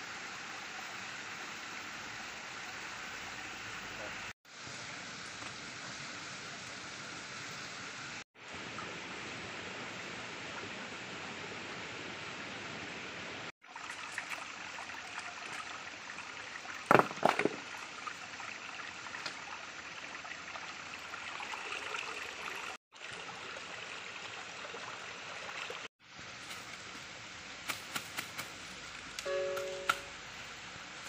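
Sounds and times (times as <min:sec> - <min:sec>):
rocky stream running: 0:13.6 - 0:31.0.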